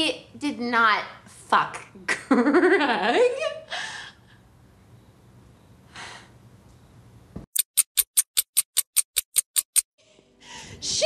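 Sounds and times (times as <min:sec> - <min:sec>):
breathy exhale: 0:05.9 - 0:06.3
sharp even ticking: 0:07.6 - 0:09.9.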